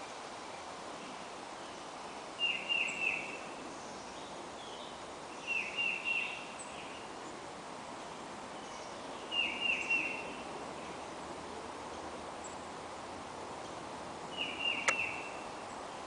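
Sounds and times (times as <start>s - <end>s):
background hiss: 0.0s - 16.0s
songbird whistling: 2.4s - 3.3s, 9.3s - 10.2s, 14.4s - 15.4s
fainter bird calls: 14.3s - 15.5s.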